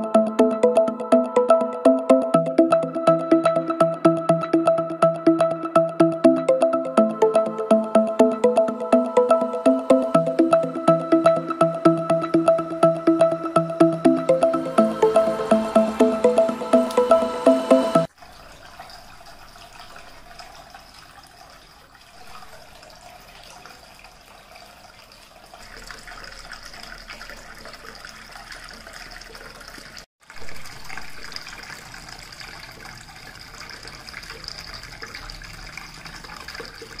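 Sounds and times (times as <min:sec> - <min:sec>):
fountain water trickling: 0:18.1 - 0:37.0.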